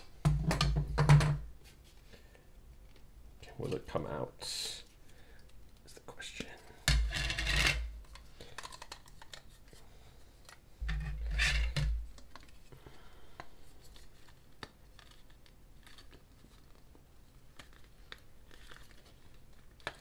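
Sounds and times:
plastic scraping and rubbing: 10.8s - 12.6s.

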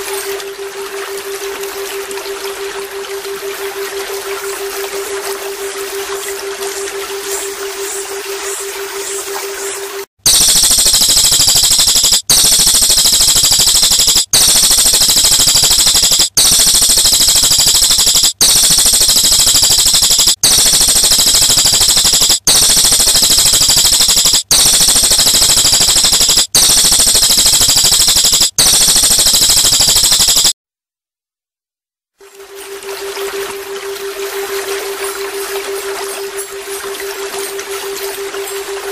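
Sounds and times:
rapid high-pitched bird trill: 7.2s - 30.5s.

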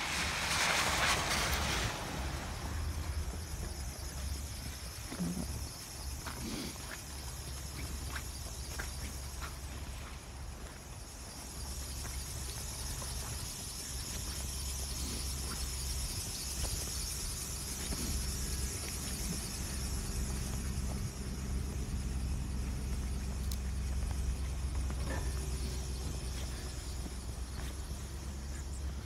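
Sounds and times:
high hiss: 0.0s - 28.9s
faint ticks: 22.6s - 25.8s.

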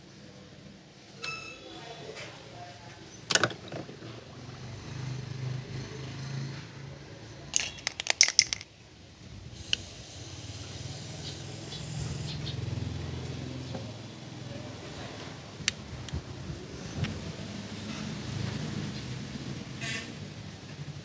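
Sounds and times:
toy car clattering on wooden table: 7.5s - 8.7s
toy car splashing into liquid: 7.6s - 8.7s.

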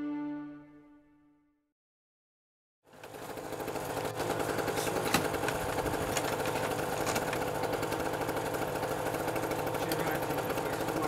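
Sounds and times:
small engine running: 2.8s - 11.0s.

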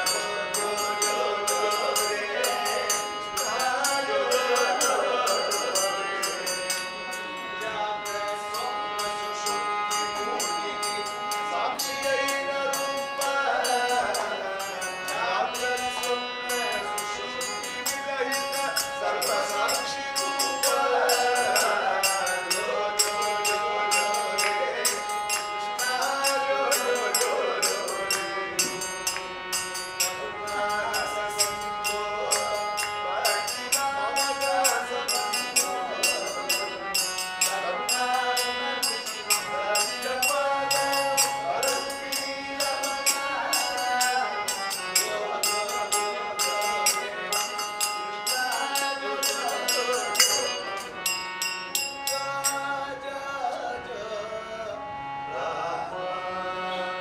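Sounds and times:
harmonium: 0.0s - 57.0s
voices singing: 0.0s - 57.0s
hand cymbals: 8.2s - 52.7s.

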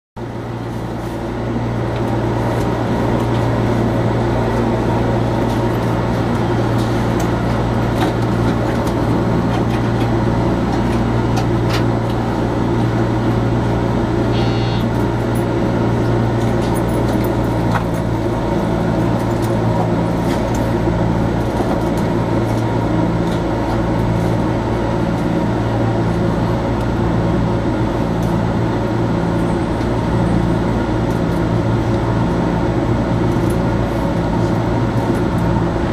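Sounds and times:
train electrical hum: 0.2s - 35.9s
high beep: 14.3s - 14.9s.

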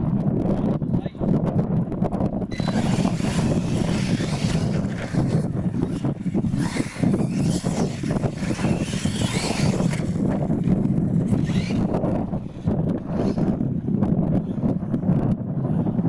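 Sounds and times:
wind rumbling on microphone: 0.0s - 16.0s
electric motors whining: 2.5s - 13.6s.

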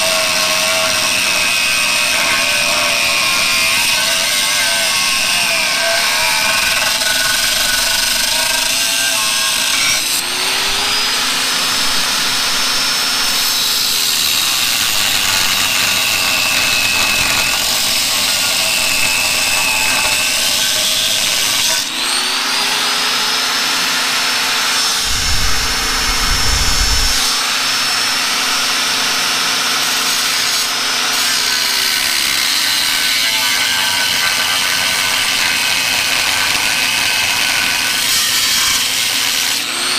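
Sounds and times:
angle grinder cutting steel: 0.0s - 39.9s
low rumbling: 25.0s - 27.9s.

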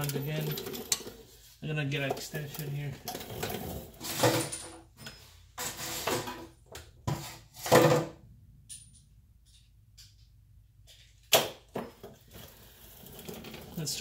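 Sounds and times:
tools clattering in toolbox: 0.0s - 1.3s, 2.2s - 6.6s.

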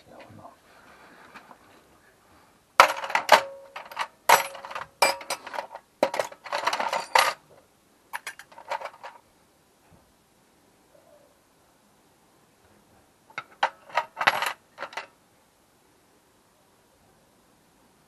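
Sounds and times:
metal tools clattering: 2.8s - 7.4s, 8.2s - 9.2s, 13.4s - 15.1s.

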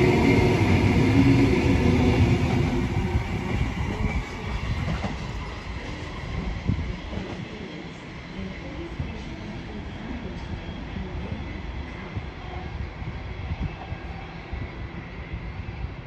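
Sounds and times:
electric train passing: 0.0s - 6.6s.

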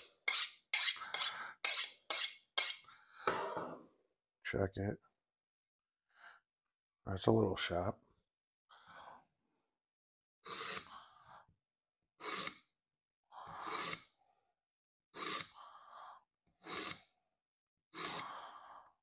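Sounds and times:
knife scraping through sharpener: 0.0s - 2.9s, 10.4s - 10.9s, 12.2s - 12.7s, 13.6s - 14.1s, 15.2s - 15.6s, 16.6s - 17.1s, 18.0s - 18.4s.

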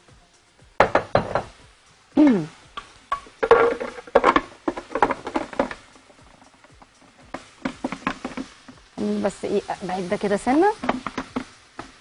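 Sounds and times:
cookware clattering: 0.8s - 1.6s, 2.8s - 8.6s, 10.8s - 12.0s.

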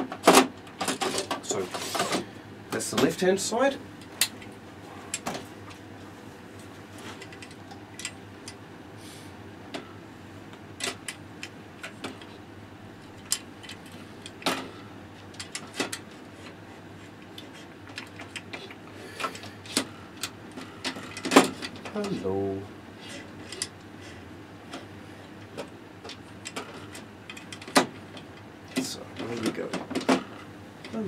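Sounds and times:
clicks and knocks of metal parts: 0.0s - 2.2s, 7.1s - 8.6s, 10.8s - 12.4s, 13.0s - 16.6s, 17.2s - 22.1s, 23.0s - 23.8s, 24.7s - 31.0s
low steady hum: 0.0s - 31.0s.

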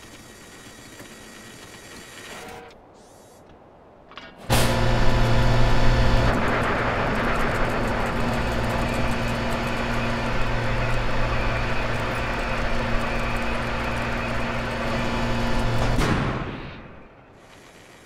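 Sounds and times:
machinery humming: 4.5s - 18.0s.

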